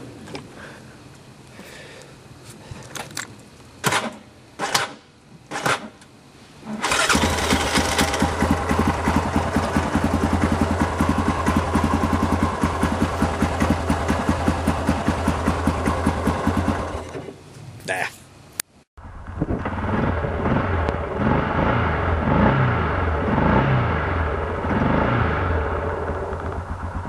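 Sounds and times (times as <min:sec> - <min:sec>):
atv engine idling: 0:07.0 - 0:17.2, 0:25.4 - 0:27.0.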